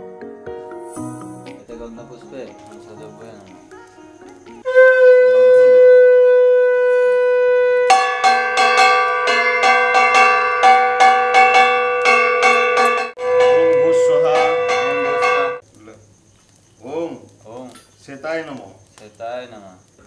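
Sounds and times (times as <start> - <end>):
conch shell blown: 4.6 - 15.6
hand bell rung rapidly: 7.9 - 13.7, 14.3 - 15.6.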